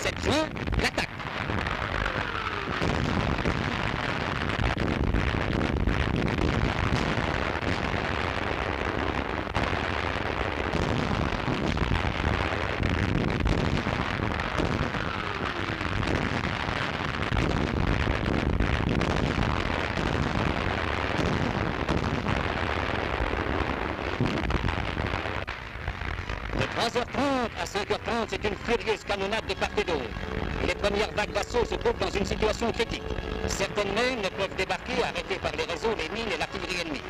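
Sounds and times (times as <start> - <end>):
artillery bombardment: 2.7 - 8.2, 15.8 - 22.9.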